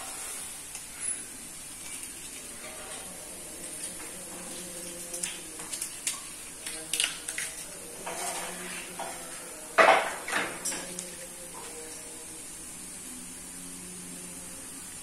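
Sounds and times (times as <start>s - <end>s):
kitchenware clattering: 1.0s - 11.8s.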